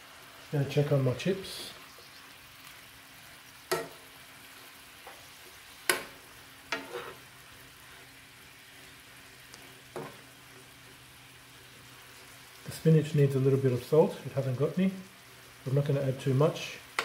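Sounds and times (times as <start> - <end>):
vegetables sizzling in a frying pan: 0.0 - 17.0
metal spoon clinking on pan: 3.7 - 4.0.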